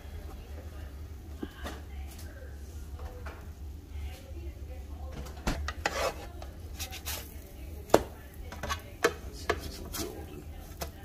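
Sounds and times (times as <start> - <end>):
spatula clacking on frying pan: 7.9 - 9.7.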